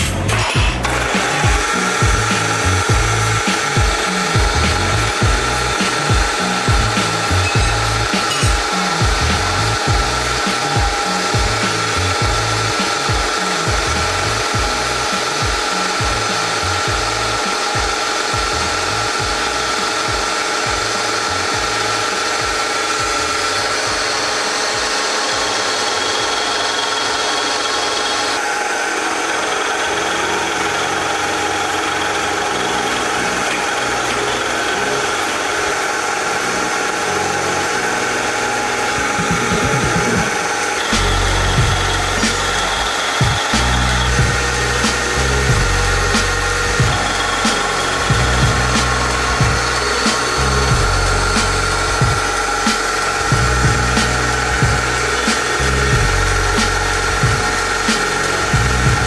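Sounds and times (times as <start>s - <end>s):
cutter rasping metal: 0.0s - 59.0s
milling machine motor hum: 0.0s - 59.0s.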